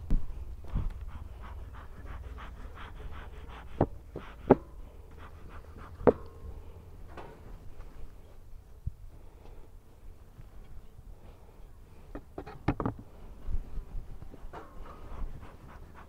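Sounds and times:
wind rumble on microphone: 0:00.0 - 0:04.0, 0:07.6 - 0:09.3, 0:12.9 - 0:16.0.

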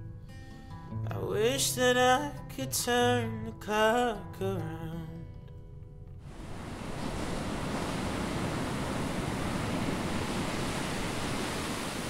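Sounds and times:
ocean waves breaking on beach: 0:06.3 - 0:12.0.

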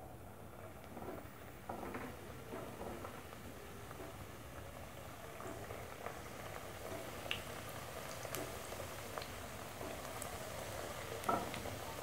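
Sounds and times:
oil sizzling and bubbling: 0:00.0 - 0:12.0
oil popping and crackling: 0:02.4 - 0:12.0.

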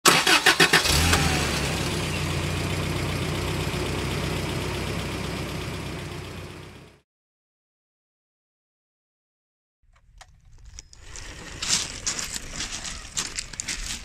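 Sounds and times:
engine starting and idling: 0:00.0 - 0:07.0.

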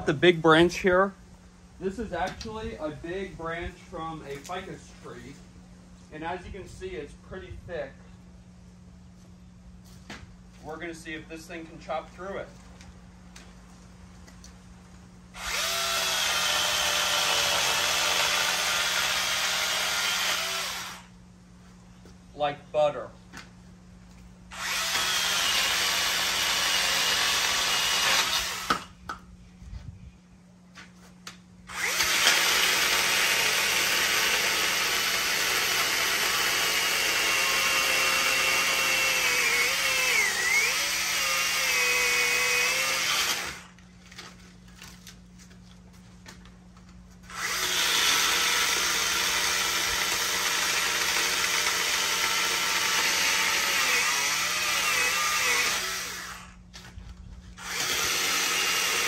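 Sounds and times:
mini chainsaw cutting branch: 0:15.4 - 0:21.1, 0:24.5 - 0:28.9, 0:31.7 - 0:43.8, 0:47.3 - 0:56.6, 0:57.6 - 0:59.0.

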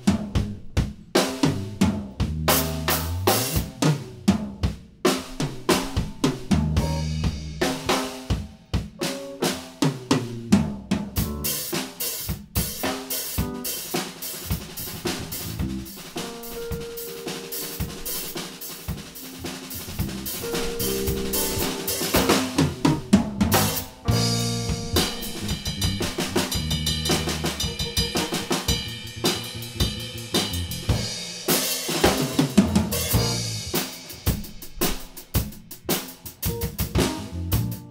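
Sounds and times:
drum kit playing: 0:00.0 - 0:37.9
held keyboard notes: 0:09.0 - 0:09.8, 0:13.2 - 0:30.3, 0:36.4 - 0:37.9.

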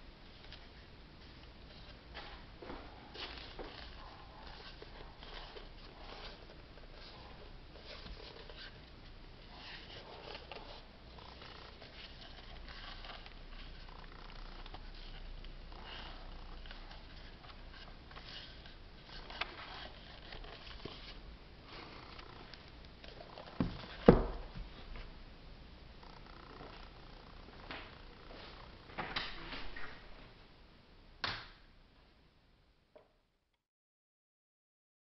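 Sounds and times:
book covers rubbing against hands: 0:01.7 - 0:25.1
paper pages rustling: 0:01.7 - 0:25.1.

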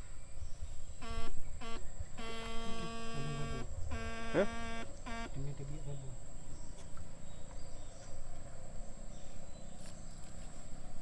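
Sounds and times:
electric stunner buzzing hum: 0:01.0 - 0:06.4.

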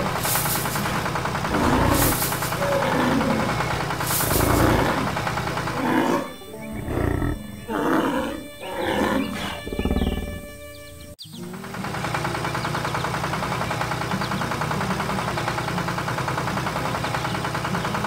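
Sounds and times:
steady running noise: 0:00.0 - 0:07.6, 0:09.6 - 0:18.0
background music: 0:00.0 - 0:11.2
animated bison bellowing: 0:00.9 - 0:11.1.

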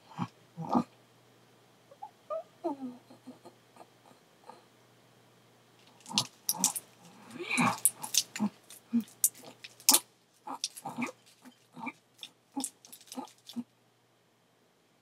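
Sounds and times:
squirrel chewing nut: 0:05.8 - 0:13.6.

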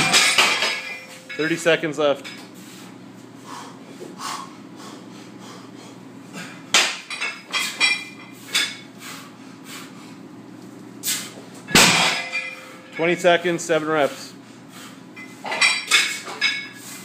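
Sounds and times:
steady low hum: 0:00.0 - 0:17.0
heavy dumbbell crash: 0:11.7 - 0:12.7.

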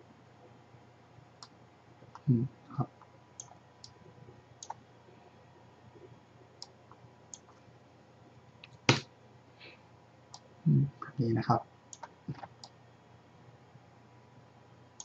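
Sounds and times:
mouse and keyboard clicks: 0:04.6 - 0:04.8, 0:11.9 - 0:12.8.

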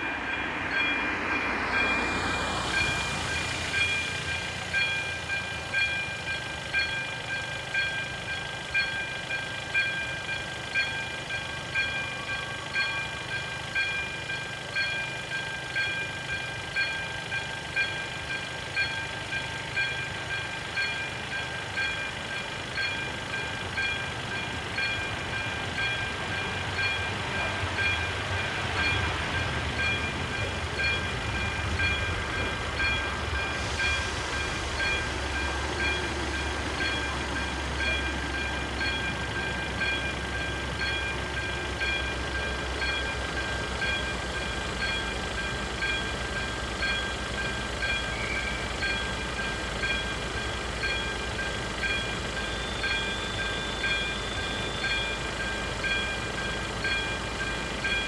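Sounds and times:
level crossing warning bell: 0:00.0 - 0:58.0
low rumble: 0:28.8 - 0:41.5.

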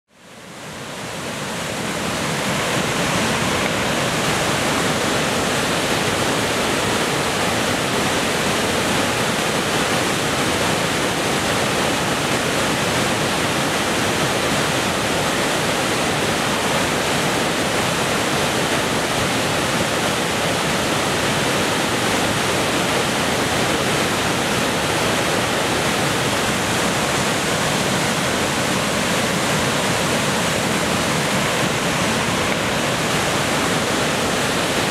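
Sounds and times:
rushing whitewater river: 0:00.1 - 0:34.9.

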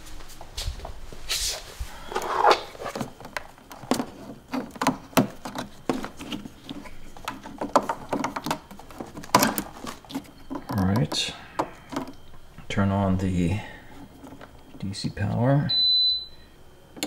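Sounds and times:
plugs clicking and rustling: 0:02.1 - 0:12.8.

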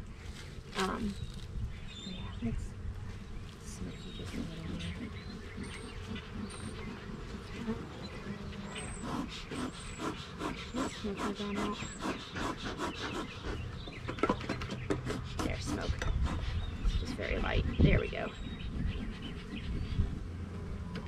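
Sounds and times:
bees buzzing: 0:02.2 - 0:13.8.

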